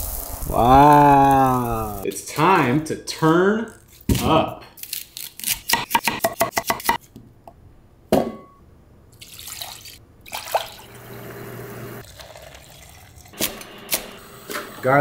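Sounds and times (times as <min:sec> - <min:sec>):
water pouring into metal pot: 0:09.2 - 0:11.0, 0:12.0 - 0:13.3.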